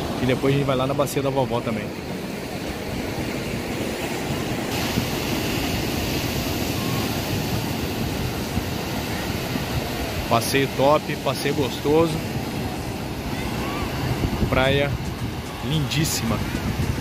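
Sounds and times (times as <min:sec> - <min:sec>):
waves washing on beach: 0:00.0 - 0:17.0
wind rumble on microphone: 0:02.5 - 0:10.3, 0:11.7 - 0:17.0.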